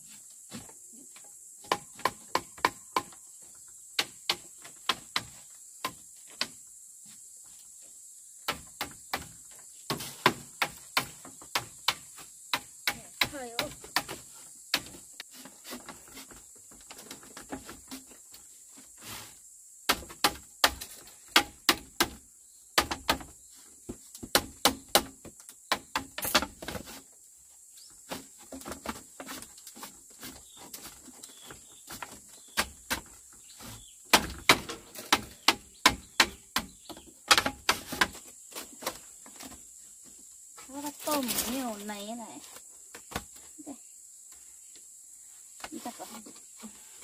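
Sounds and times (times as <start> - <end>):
sharp knocks and taps: 34.1 - 38.2.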